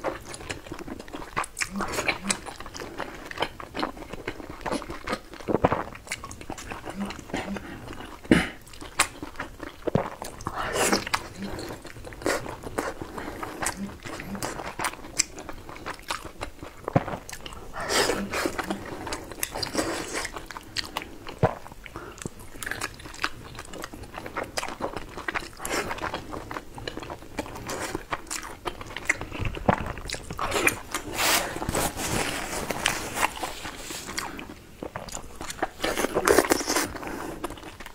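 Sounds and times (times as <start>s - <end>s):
biting and chewing food: 0.0s - 37.9s
wet mouth sounds: 1.2s - 2.9s, 4.6s - 24.0s, 27.6s - 37.9s.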